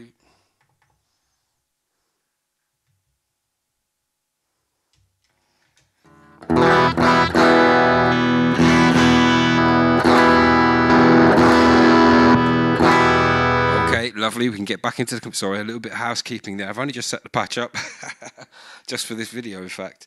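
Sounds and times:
electric guitar strummed chords: 0:06.1 - 0:14.0.

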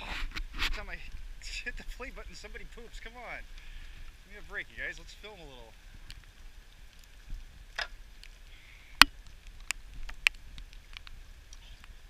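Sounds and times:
faint background noise: 0:00.0 - 0:12.0.

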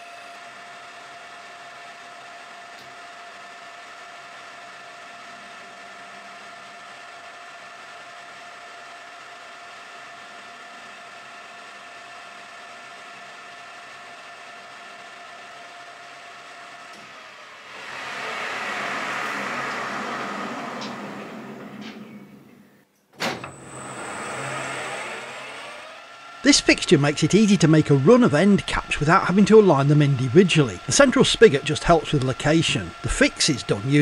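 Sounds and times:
metal lathe whining: 0:15.6 - 0:22.6, 0:23.4 - 0:34.0
rushing noise of chuck slowing: 0:17.2 - 0:22.6, 0:23.4 - 0:34.0.

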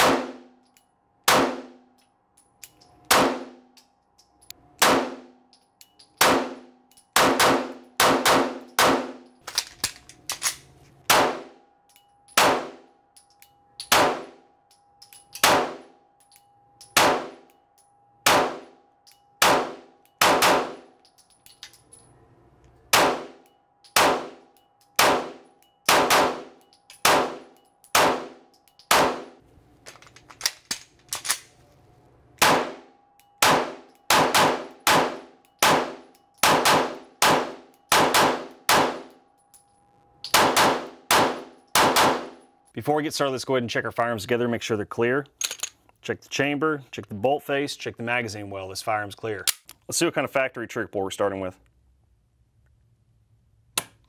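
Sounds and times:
pistol shots echoing: 0:00.0 - 0:00.6, 0:01.2 - 0:01.9, 0:03.1 - 0:03.7, 0:04.8 - 0:05.4, 0:06.2 - 0:09.3, 0:11.1 - 0:11.6, 0:12.3 - 0:12.9, 0:13.8 - 0:14.4, 0:15.4 - 0:15.9, 0:17.0 - 0:17.4, 0:18.2 - 0:18.8, 0:19.4 - 0:21.0, 0:22.9 - 0:29.4, 0:32.4 - 0:39.2, 0:40.3 - 0:42.4
metallic ringing tone: 0:11.6 - 0:13.8, 0:32.8 - 0:34.1.

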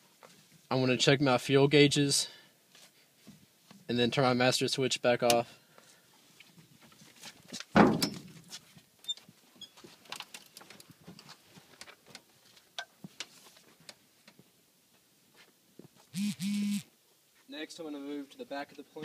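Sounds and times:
faint clicks taps and rustles: 0:08.5 - 0:16.1.

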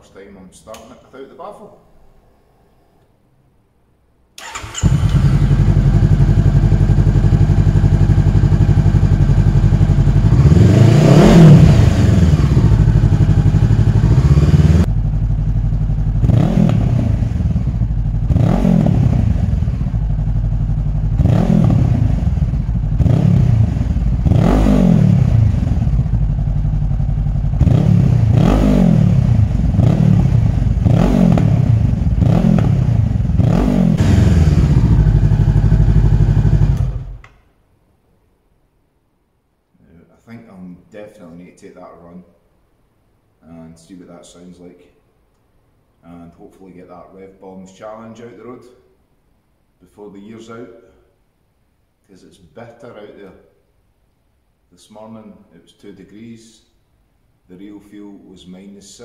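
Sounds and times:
motorcycle engine idling and revving: 0:04.5 - 0:37.2.

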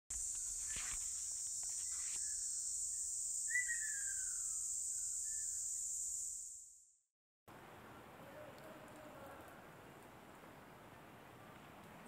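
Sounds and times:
insects chorus: 0:00.1 - 0:06.8
falling bird call: 0:03.4 - 0:05.6.

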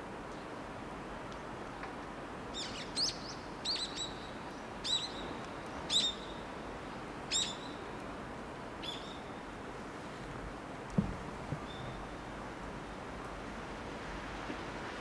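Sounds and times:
low background noise: 0:00.0 - 0:15.0
small bird chirping: 0:02.6 - 0:05.3, 0:05.9 - 0:06.4.

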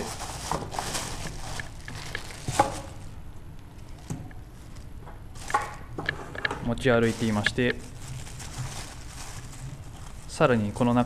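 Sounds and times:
plastic bag rustling: 0:00.0 - 0:06.0, 0:06.7 - 0:11.0.

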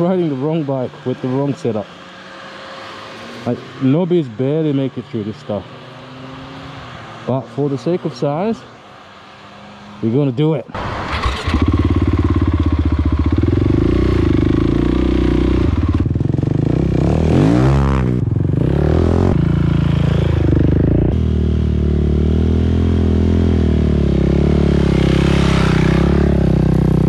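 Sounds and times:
motorcycle engine revving in sand: 0:10.8 - 0:27.0.

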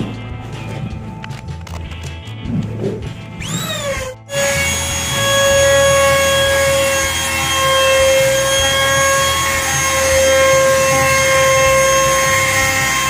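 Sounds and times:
router motor whining: 0:03.4 - 0:13.0.

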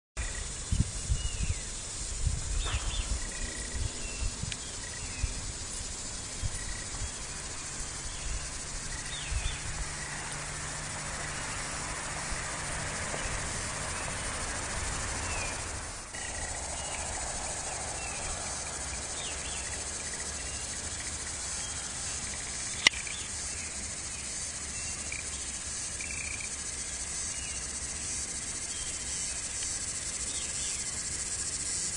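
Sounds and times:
wind rumbling on microphone: 0:00.2 - 0:10.5, 0:11.1 - 0:20.9
insects chirring: 0:00.2 - 0:31.9
sharp click: 0:22.8 - 0:23.1.

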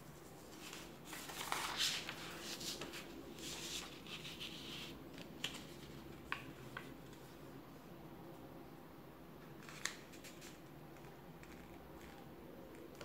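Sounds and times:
paper rustling and crinkling: 0:00.2 - 0:07.4.

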